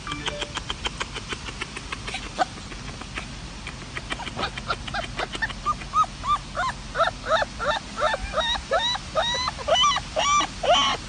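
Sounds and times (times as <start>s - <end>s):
puppy whimpering yips: 4.2s - 11.0s.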